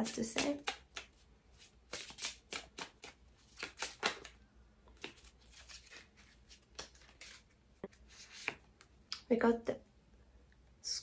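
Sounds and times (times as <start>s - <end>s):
cards being shuffled: 0.0s - 8.9s.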